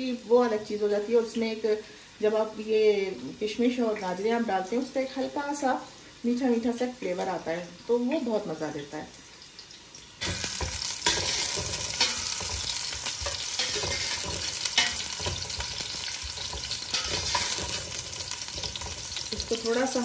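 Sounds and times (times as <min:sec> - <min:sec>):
onions sizzling in hot oil: 0:00.0 - 0:20.0
metal spoon scraping pot: 0:10.2 - 0:19.4.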